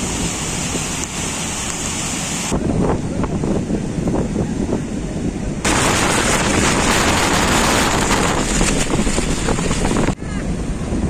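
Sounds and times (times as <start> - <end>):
heavy surf breaking waves: 0.0 - 11.0
wind buffeting microphone: 2.4 - 11.0.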